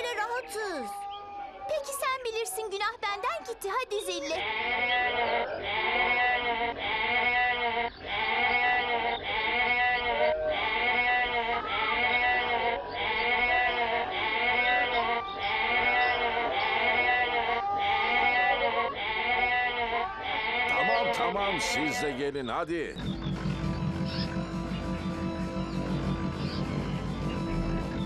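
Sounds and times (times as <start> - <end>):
goat bleating: 4.2 - 21.3.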